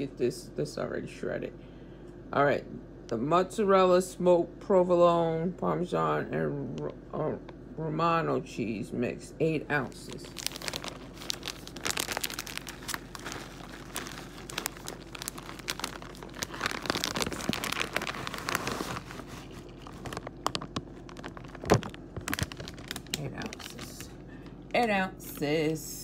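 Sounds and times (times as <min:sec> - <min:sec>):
plastic bag crinkling: 0:09.7 - 0:24.8.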